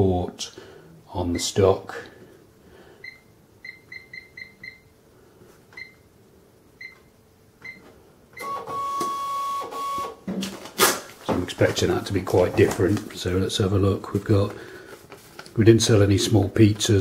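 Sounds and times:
cash register key beeps: 8.4s - 10.2s.

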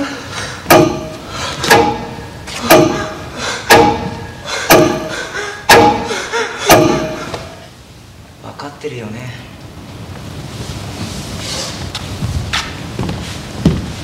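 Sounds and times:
heavy drum-like thud: 0.7s - 6.1s, 6.7s - 7.6s.

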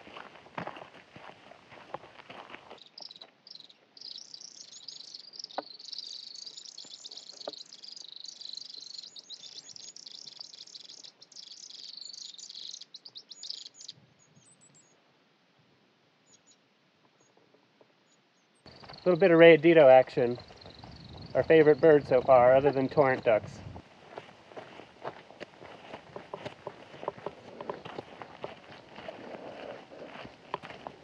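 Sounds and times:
faint high chirps: 2.8s - 15.0s
bird trilling: 3.0s - 13.9s.

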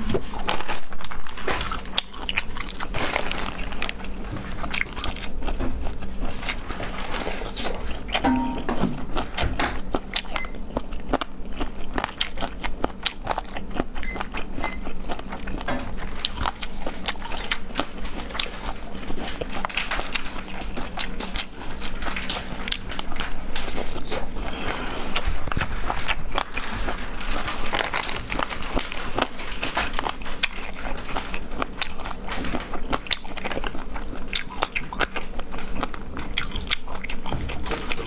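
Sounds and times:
wet crunching and chewing: 0.0s - 38.0s.

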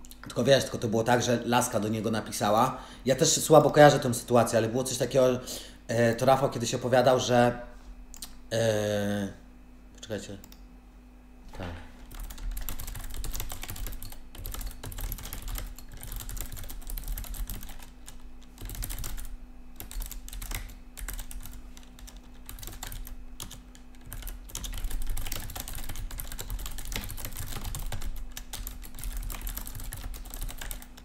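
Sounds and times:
steady low hum: 0.0s - 31.0s
fast typing on keyboard: 12.0s - 31.0s.

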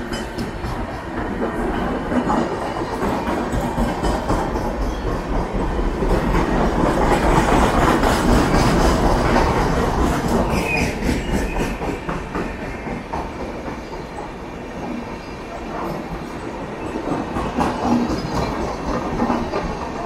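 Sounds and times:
train wheels clattering over rail joints: 0.0s - 15.0s, 15.6s - 20.0s
passing train rumble: 0.0s - 20.0s
high squeal: 10.4s - 11.8s.

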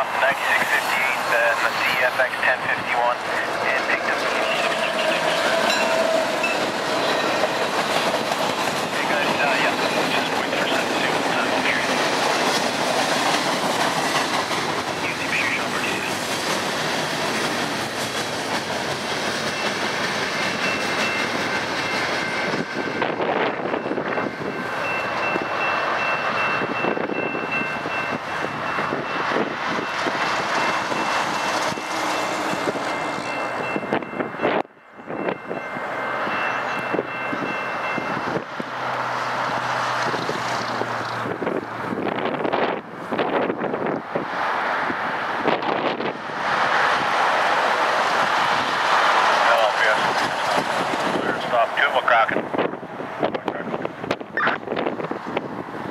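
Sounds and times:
train wheels clickety-clack: 3.8s - 24.2s, 45.5s - 51.7s.

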